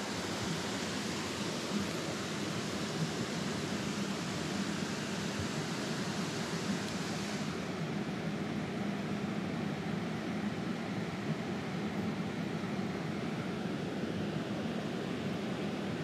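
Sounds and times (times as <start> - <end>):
small waterfall rushing: 0.0 - 7.8.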